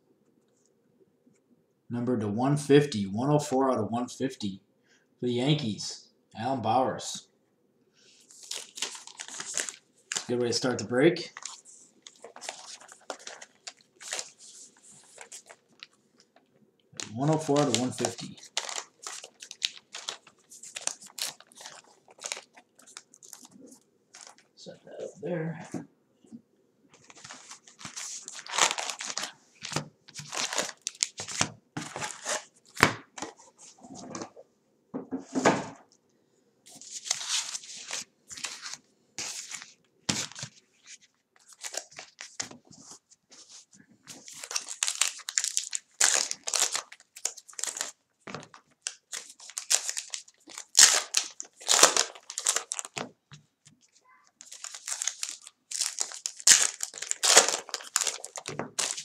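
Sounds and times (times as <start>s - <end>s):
foil wrappers crinkling and tearing: 8.2s - 10.4s, 11.2s - 16.4s, 17.0s - 23.6s, 24.2s - 24.5s, 27.0s - 32.8s, 36.7s - 42.6s, 44.1s - 53.1s, 53.8s - 59.0s.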